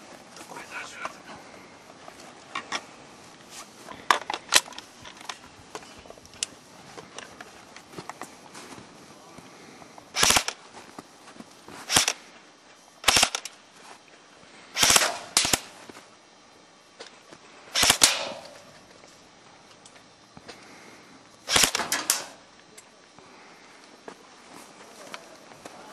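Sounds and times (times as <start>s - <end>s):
airsoft rifle firing bursts: 10.1s - 10.6s, 11.8s - 12.2s, 13.0s - 13.5s, 14.8s - 15.8s, 17.8s - 18.6s, 21.5s - 22.4s.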